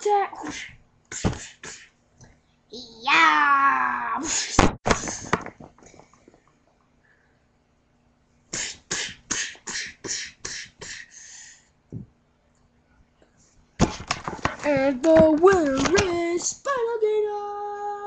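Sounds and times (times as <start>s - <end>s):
child making mouth sound effects: 0.0s - 1.9s, 8.5s - 11.1s.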